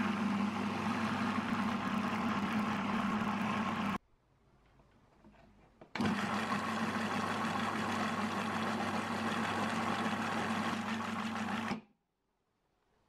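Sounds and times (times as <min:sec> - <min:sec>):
food processor motor running: 0:00.0 - 0:04.0, 0:06.0 - 0:11.8.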